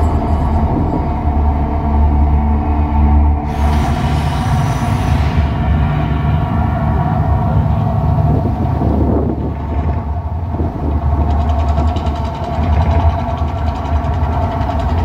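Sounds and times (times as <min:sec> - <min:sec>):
deep steady rumble: 0:00.0 - 0:15.0
held drone: 0:00.0 - 0:15.0.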